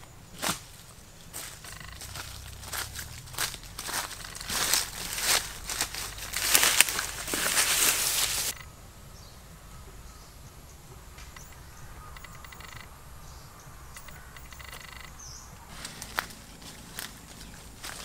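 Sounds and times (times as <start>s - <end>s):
rapid trilling animal calls: 1.4s - 8.8s, 11.2s - 15.7s
high chirp: 1.4s - 15.7s
sharp clicks: 1.6s - 8.7s, 11.2s - 12.9s, 13.9s - 15.2s.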